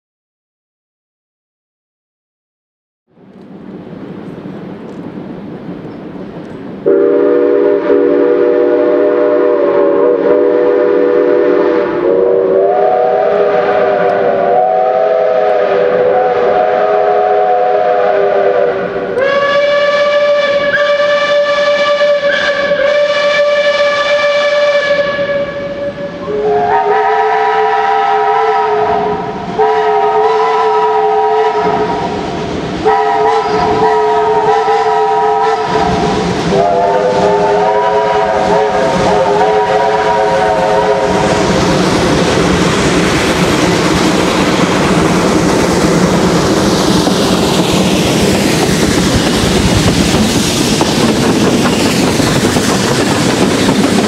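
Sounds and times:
steam locomotives passing: 3.1s - 54.0s
steam train whistles: 6.8s - 42.0s.

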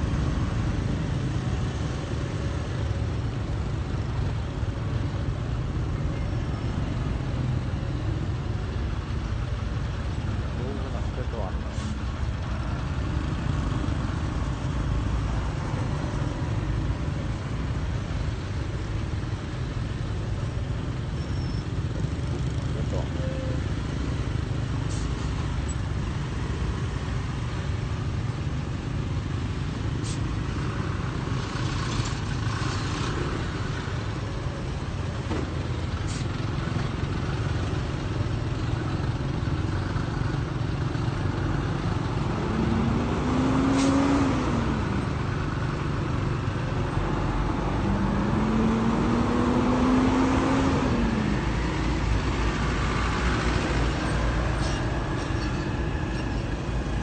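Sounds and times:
rumble of engines and tyres: 0.0s - 57.0s.

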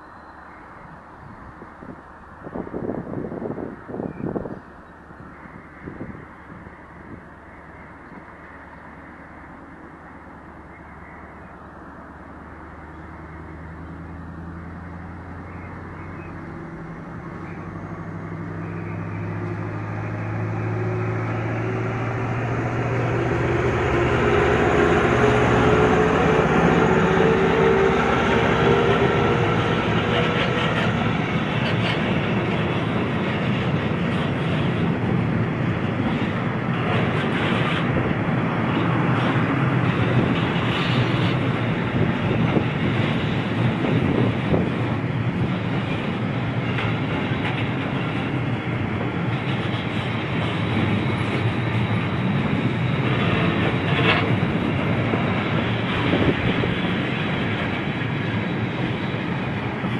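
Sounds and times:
diesel locomotive engine running: 0.0s - 59.9s
train wheels clattering over track: 16.3s - 59.9s.

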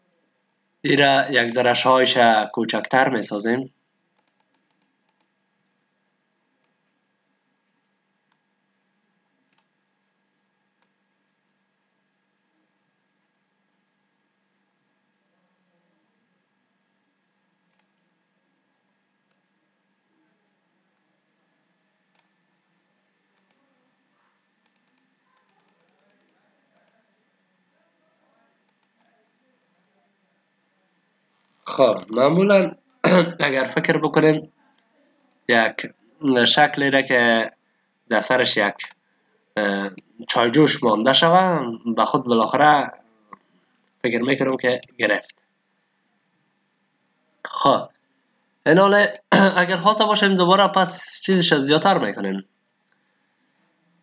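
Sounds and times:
faint mouse clicks: 4.2s - 5.8s, 6.6s - 6.8s, 7.7s - 8.5s, 9.5s - 9.8s, 10.8s - 11.0s, 17.7s - 18.0s, 19.3s - 19.5s, 22.1s - 22.4s, 23.4s - 23.6s, 24.6s - 27.0s, 28.6s - 29.2s.

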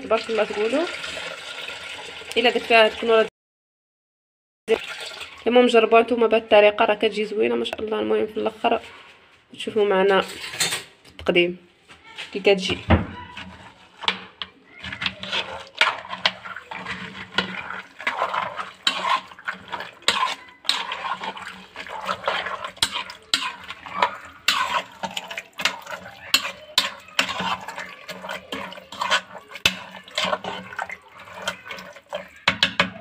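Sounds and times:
metal spoon scraping a pot: 10.1s - 10.9s, 12.3s - 33.0s
thick mixture squelching: 12.1s - 33.0s.

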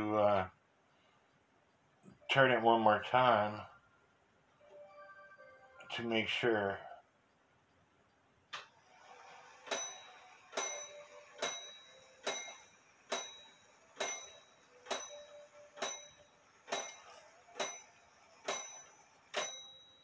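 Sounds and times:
clock striking on gong: 9.6s - 20.0s.

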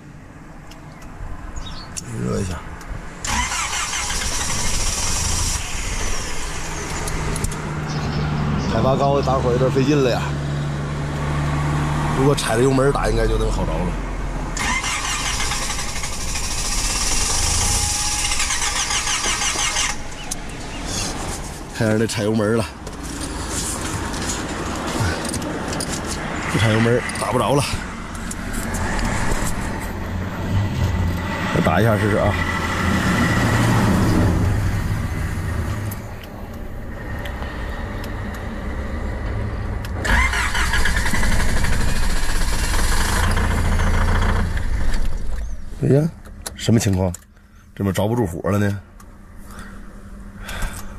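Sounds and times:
car starter cranking engine: 3.2s - 7.5s, 14.6s - 20.4s, 40.0s - 45.6s
car engine cranking and starting: 3.2s - 8.1s, 14.5s - 21.9s, 22.8s - 47.7s.

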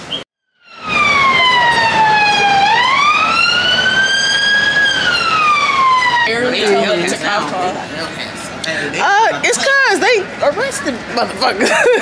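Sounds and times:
traffic noise: 0.0s - 12.0s
emergency vehicle siren wailing: 0.6s - 7.4s.

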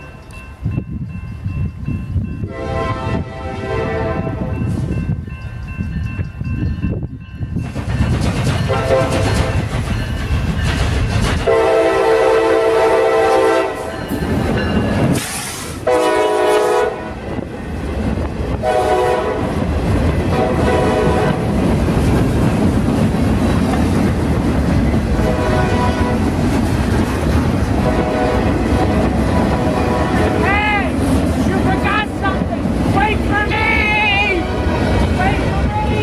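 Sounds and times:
train rumble and wheel clatter: 0.0s - 36.0s
locomotive air horn blasts: 2.5s - 4.6s, 8.7s - 9.5s, 11.5s - 13.9s, 15.4s - 17.2s, 18.6s - 19.5s, 20.3s - 21.5s, 25.2s - 26.2s, 27.8s - 30.5s.

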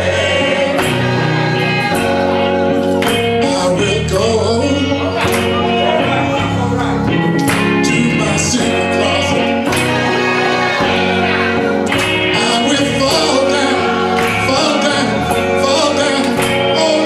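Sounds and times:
electric guitar: 0.0s - 17.0s
gospel choir singing: 0.0s - 17.0s
percussion hits: 0.6s - 3.5s, 9.6s - 13.3s.

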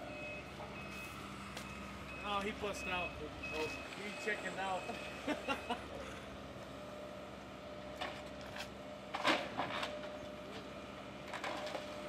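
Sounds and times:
excavator engine and hydraulic hum: 0.0s - 12.0s
crunching and scraping debris: 7.9s - 12.0s.

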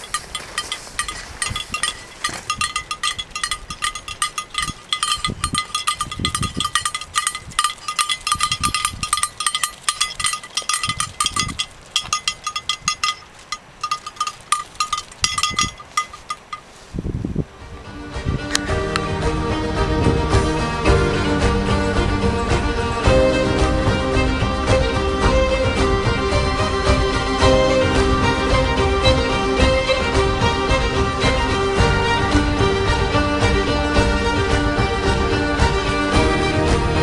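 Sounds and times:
sheep bell clanking: 0.0s - 16.7s
wind rumbling on microphone: 0.0s - 37.0s.

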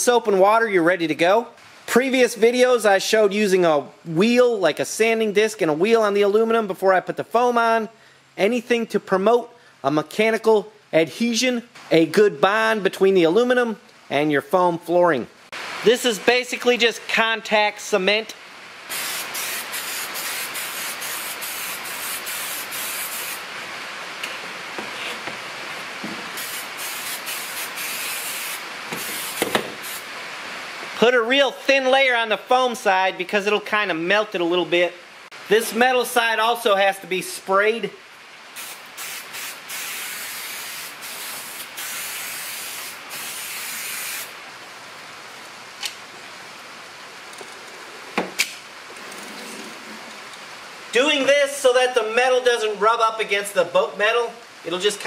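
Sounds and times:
aerosol can spraying: 18.9s - 23.5s, 26.3s - 30.1s, 38.6s - 44.4s.

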